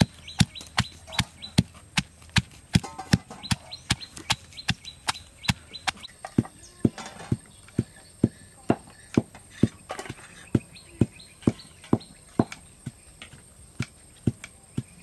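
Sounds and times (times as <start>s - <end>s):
stone pestle pounding in mortar: 0.0s - 8.0s.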